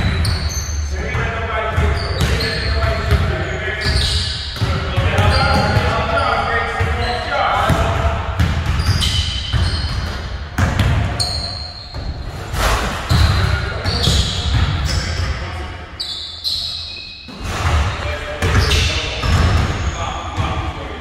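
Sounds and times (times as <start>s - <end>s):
basketballs bouncing on hardwood floor: 0.0s - 6.2s, 6.8s - 12.3s, 12.9s - 15.4s, 16.9s - 20.7s.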